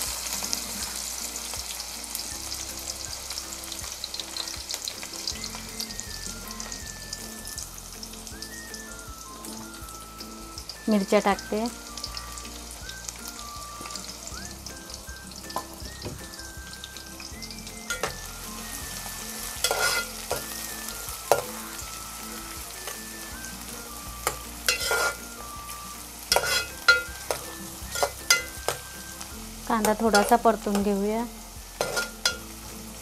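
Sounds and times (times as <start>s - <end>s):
onions sizzling in hot oil: 0.0s - 33.0s
metal spatula scraping pot: 17.9s - 18.3s, 19.6s - 20.6s, 24.2s - 25.3s, 26.3s - 28.8s, 29.8s - 30.8s, 31.8s - 32.5s.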